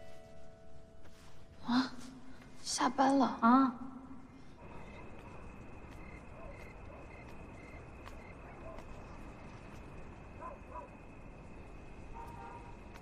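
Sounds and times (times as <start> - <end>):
insects droning: 4.1 - 13.0
low chirps: 4.1 - 13.0
cricket chirps: 4.4 - 13.0.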